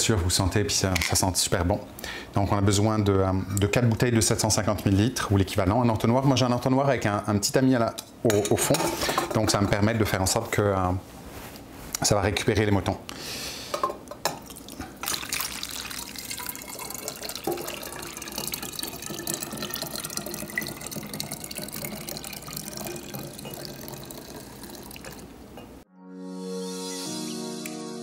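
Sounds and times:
liquid pouring into bottle: 14.4 - 25.4.

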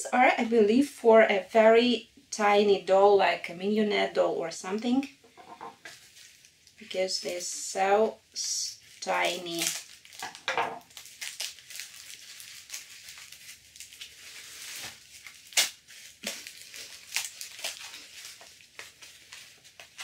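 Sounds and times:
tissue paper crinkling: 5.9 - 7.4, 8.7 - 20.0.

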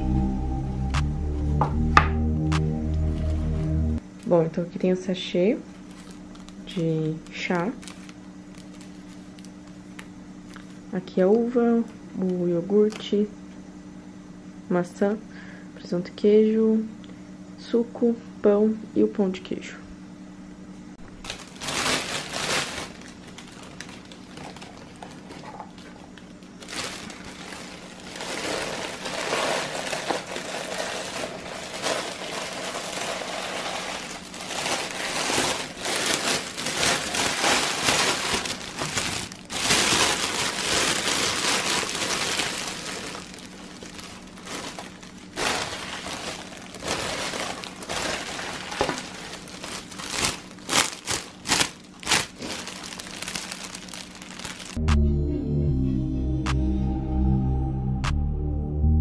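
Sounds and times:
cellophane film crinkling: 5.7 - 10.8, 21.0 - 54.8.

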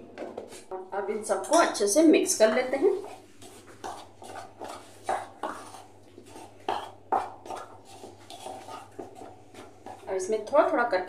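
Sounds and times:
spoon scraping bowl: 2.4 - 10.1.

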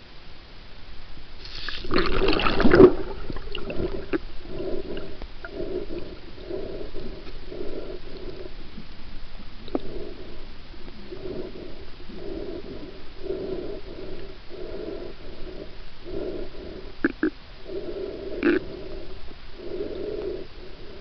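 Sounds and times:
underwater rush of water: 1.4 - 4.3.

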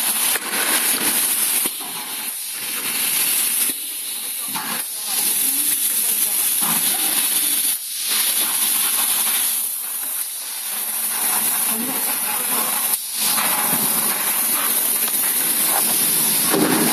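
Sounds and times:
loud hiss of rushing air: 0.0 - 16.9.

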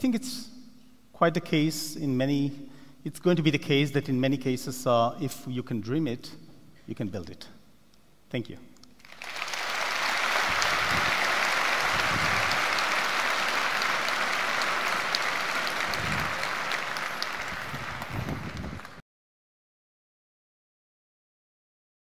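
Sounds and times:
audience applauding: 9.0 - 19.0.

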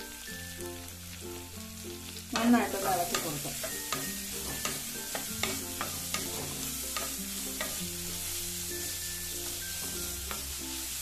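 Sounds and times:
onions sizzling in oil: 0.0 - 11.0
spatula knocking and scraping pan: 2.4 - 8.0.

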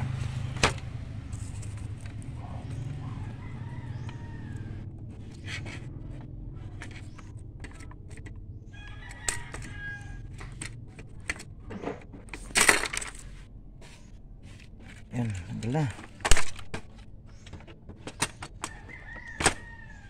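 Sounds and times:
rooster crowing: 2.7 - 4.9, 8.7 - 10.6, 18.7 - 20.0
clatter inside printer: 3.8 - 9.8, 14.8 - 20.0.

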